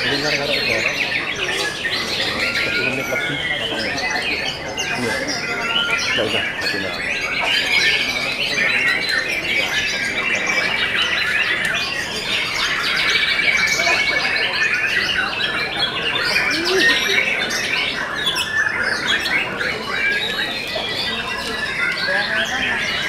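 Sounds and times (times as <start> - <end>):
songbirds singing in chorus: 0.0 - 23.0.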